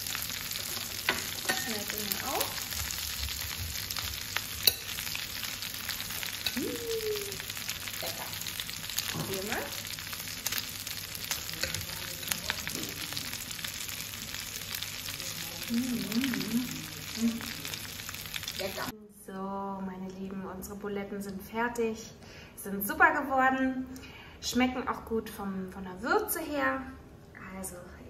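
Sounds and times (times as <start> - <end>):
meatballs sizzling in a frying pan: 0.0 - 18.9.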